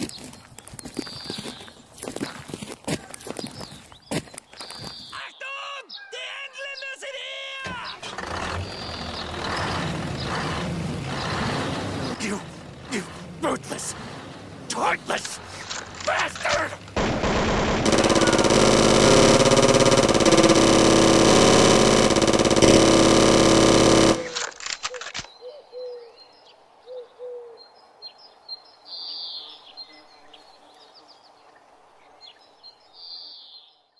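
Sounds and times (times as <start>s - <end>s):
machine-gun fire: 17.0s - 24.6s.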